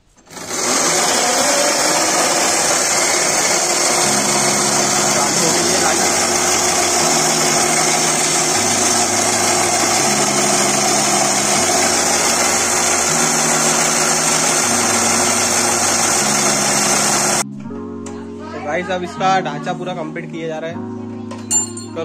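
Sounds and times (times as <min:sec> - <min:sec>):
electric motor whirring: 0:00.1 - 0:17.4.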